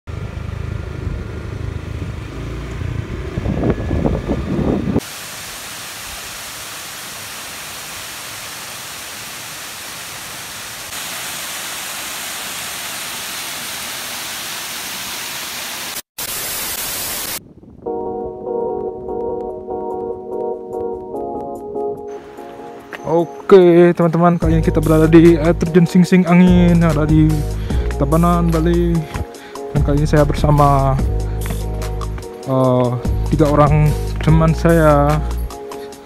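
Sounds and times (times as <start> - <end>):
wind buffeting microphone: 1.0 - 5.0, 17.4 - 21.1
waterfall rushing: 5.0 - 17.4
music: 17.8 - 36.0.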